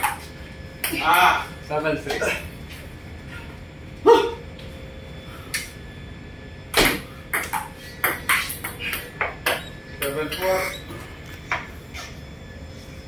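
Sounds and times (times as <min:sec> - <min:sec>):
ping-pong ball hitting paddles: 0:06.8 - 0:09.6.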